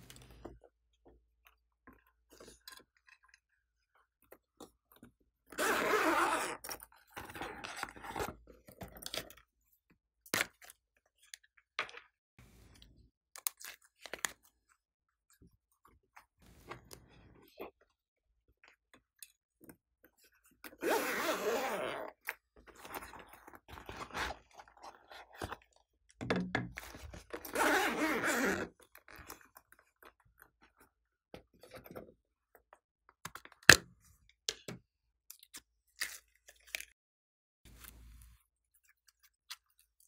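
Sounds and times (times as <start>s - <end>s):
zipper being pulled open: 5.5s - 8.3s, 20.8s - 22.2s, 27.4s - 28.8s.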